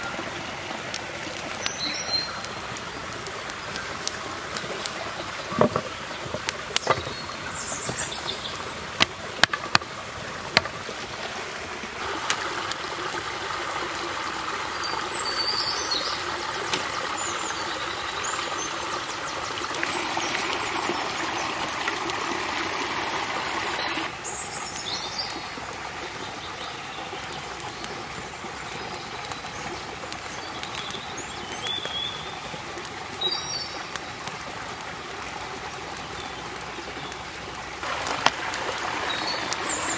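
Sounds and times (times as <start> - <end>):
forest stream running: 0.0 - 39.9
birds chirping: 1.2 - 8.8, 14.5 - 21.9, 22.7 - 34.2, 35.0 - 39.9.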